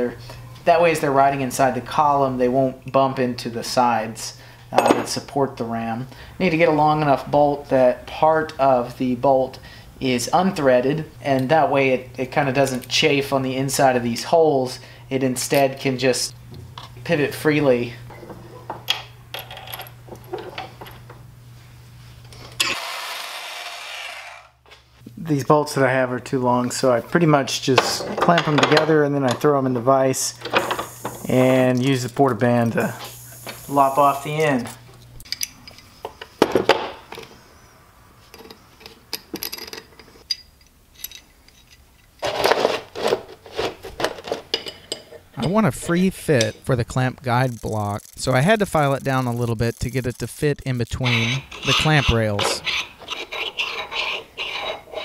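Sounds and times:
metal parts clinking on workbench: 18.9s - 21.0s, 39.2s - 43.2s
steel bolts clinking: 38.4s - 42.1s.

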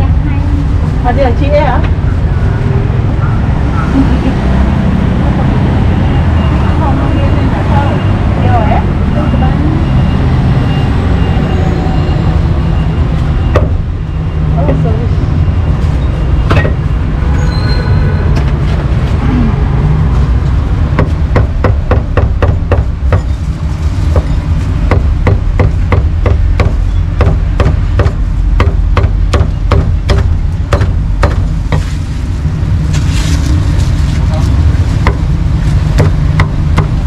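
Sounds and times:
low rumble: 9.9s - 37.0s
cleaver chopping on wooden block: 24.9s - 31.9s, 36.0s - 37.0s.

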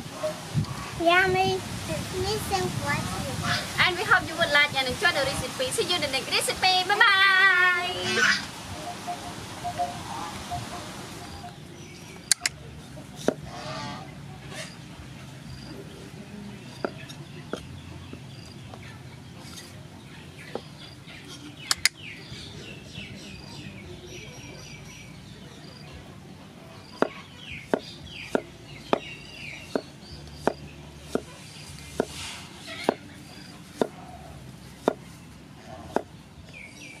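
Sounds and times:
small birds chirping: 0.2s - 37.0s
sharp clicks: 12.3s - 12.6s, 21.7s - 22.0s.

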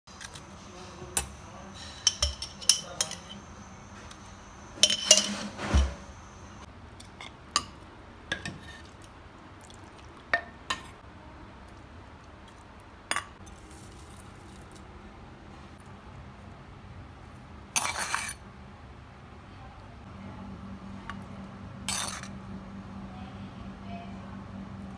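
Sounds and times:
utensils clattering: 0.1s - 4.2s, 4.8s - 6.6s
metal utensils clinking on clay pots: 1.2s - 3.6s, 4.8s - 5.9s.

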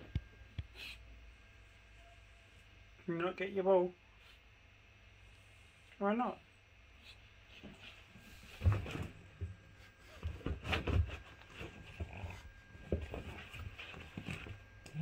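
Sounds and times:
dog grunting and snuffling: 11.6s - 15.0s.

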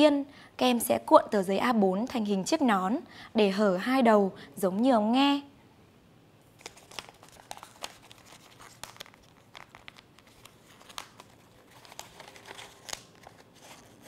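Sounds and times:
paper crackling and rustling: 6.6s - 14.0s.

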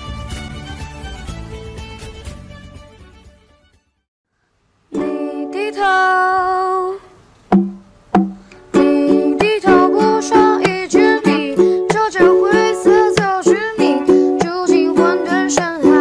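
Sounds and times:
plucked ukulele accompaniment: 4.9s - 6.3s, 7.5s - 16.0s
person singing: 4.9s - 7.2s, 8.6s - 16.0s.

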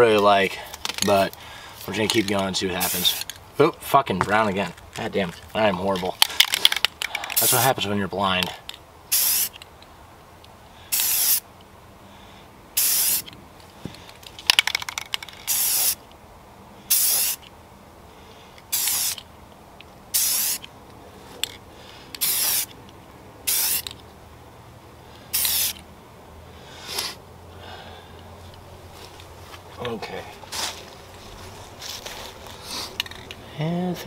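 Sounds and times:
spray can rattle: 2.0s - 3.4s, 6.0s - 7.7s, 9.1s - 9.6s, 10.9s - 11.4s, 12.8s - 13.3s, 14.2s - 16.0s, 16.9s - 17.4s, 18.7s - 19.3s, 20.1s - 20.7s, 22.2s - 22.7s, 23.5s - 24.0s, 25.3s - 25.8s, 33.0s - 33.4s
spray paint can hissing: 2.8s - 3.4s, 7.4s - 7.7s, 9.1s - 9.6s, 10.9s - 11.4s, 12.8s - 13.3s, 14.6s - 16.0s, 16.9s - 17.5s, 18.7s - 19.3s, 20.1s - 20.7s, 22.2s - 22.8s, 23.4s - 24.0s, 25.3s - 25.8s.

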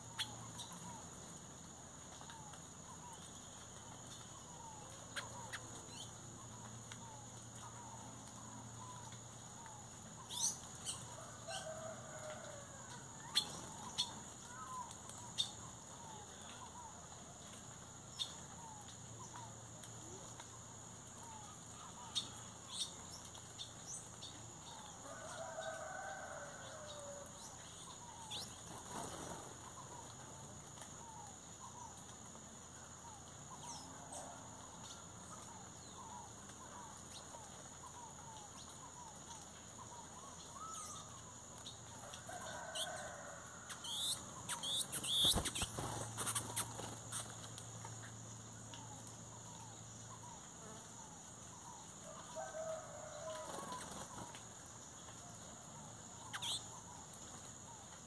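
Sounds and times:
small birds chirping: 0.0s - 32.4s, 33.2s - 55.3s, 56.2s - 58.0s
distant rooster crowing: 11.1s - 13.4s, 25.0s - 27.3s, 42.0s - 44.2s, 52.1s - 54.2s
wings flapping: 44.0s - 47.7s.

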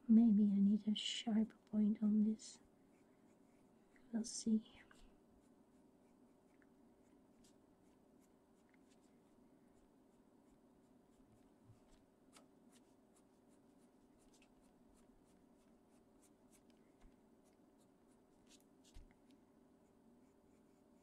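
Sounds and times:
low steady hum: 0.0s - 21.0s
pencil scratching on paper: 2.8s - 3.8s, 19.8s - 21.0s.

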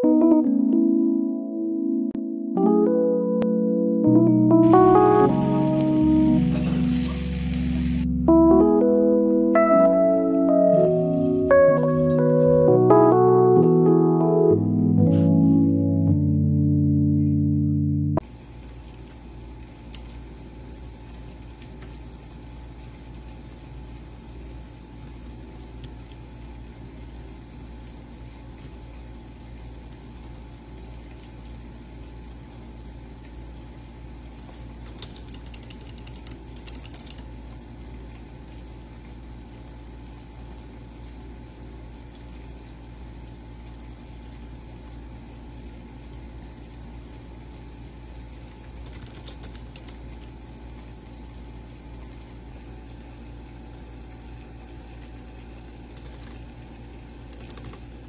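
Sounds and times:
low room hum: 9.9s - 58.0s
rapid clicking: 34.9s - 37.2s, 48.8s - 50.0s, 57.3s - 57.8s.

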